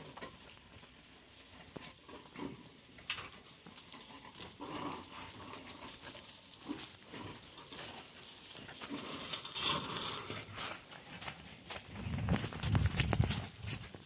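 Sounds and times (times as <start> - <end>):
rustling in dry leaves: 3.4 - 14.0.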